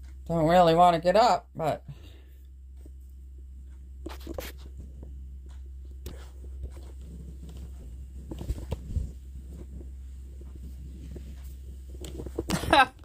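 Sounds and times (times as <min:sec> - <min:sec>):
steady low hum: 0:00.0 - 0:13.0
blanket and clothing rustling: 0:05.7 - 0:12.9.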